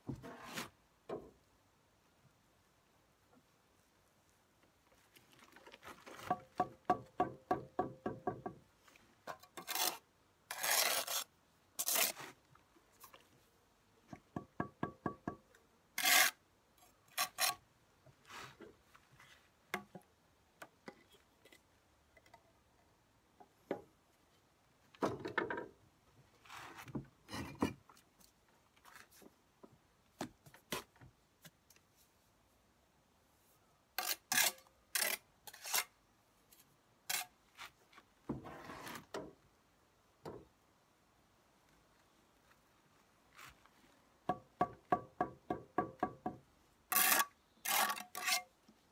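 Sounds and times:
trowel scraping wet mortar: 9.4s - 12.4s, 16.0s - 16.4s, 17.1s - 17.6s, 34.0s - 35.9s, 46.9s - 48.4s.

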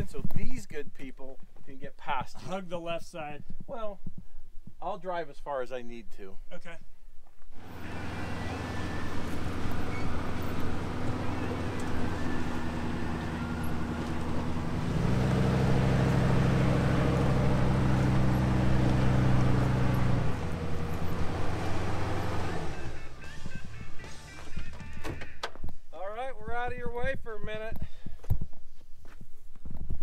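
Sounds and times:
vehicle engine running: 7.6s - 25.3s.

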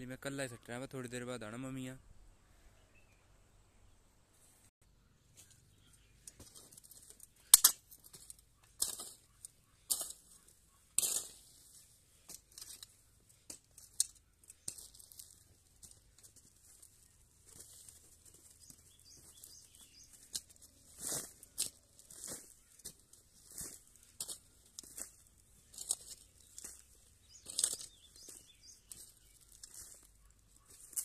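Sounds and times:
soil rustling: 5.3s - 31.0s
hoe striking manure: 6.2s - 11.6s.

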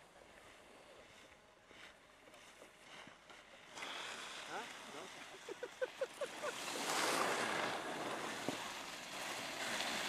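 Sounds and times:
skis hissing over snow: 3.8s - 5.6s, 6.2s - 10.0s.

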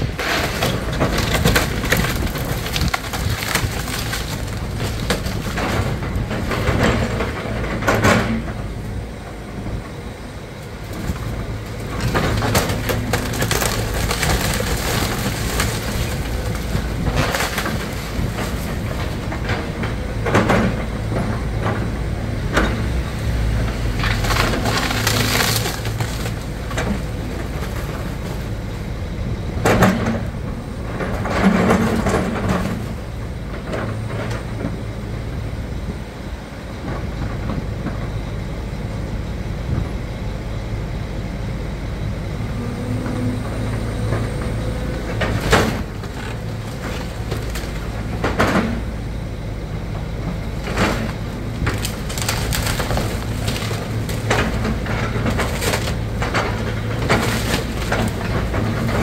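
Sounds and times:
timber cracking and crashing: 0.0s - 8.4s, 10.9s - 19.7s, 23.7s - 28.6s, 45.1s - 48.9s, 50.5s - 59.0s
excavator engine running: 0.0s - 59.0s.

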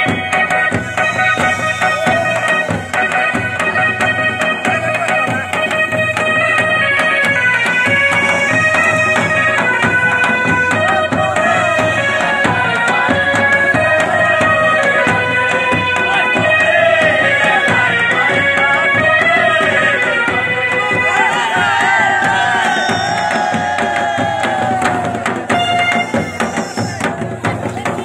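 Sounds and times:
drums beating steady rhythm: 0.0s - 28.0s
wind instrument melody: 0.0s - 28.0s.

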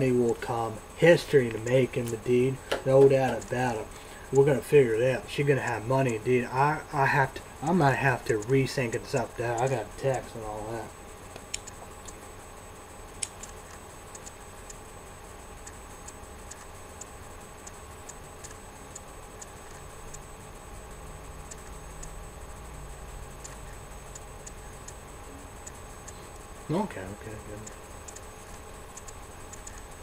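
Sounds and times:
faint steady hum: 0.0s - 30.0s
light ticks: 21.4s - 22.2s, 27.6s - 29.9s.

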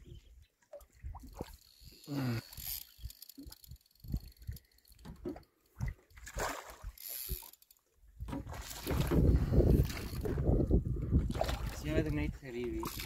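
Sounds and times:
fishing reel clicking and rasping: 1.3s - 5.1s, 6.9s - 7.8s, 12.8s - 13.0s.

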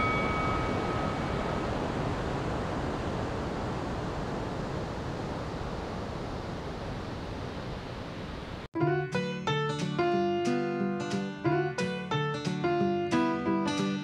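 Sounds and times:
chime ringing: 0.0s - 1.7s
steady rushing noise: 0.0s - 8.7s.

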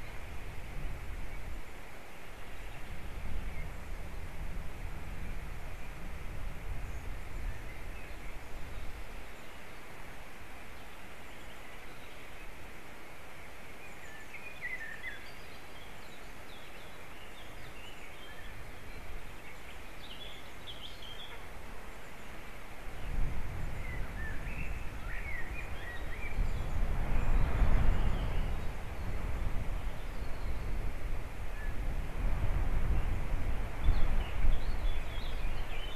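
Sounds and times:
wind buffeting microphone: 0.0s - 1.8s, 2.4s - 9.2s, 22.7s - 35.9s.

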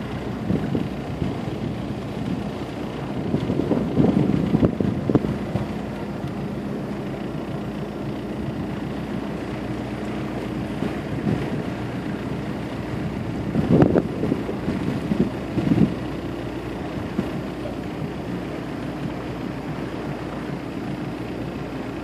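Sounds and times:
motorboat engine running: 0.0s - 22.0s
water around hull: 0.0s - 22.0s.

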